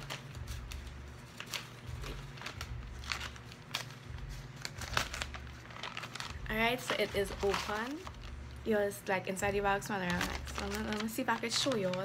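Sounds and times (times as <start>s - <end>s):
package being torn open: 0.0s - 8.6s.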